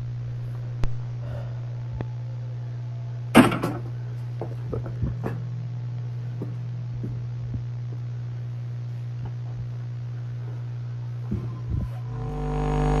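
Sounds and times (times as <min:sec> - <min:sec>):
steady low hum: 0:00.0 - 0:13.0
faint knocks and bumps: 0:04.4 - 0:05.5.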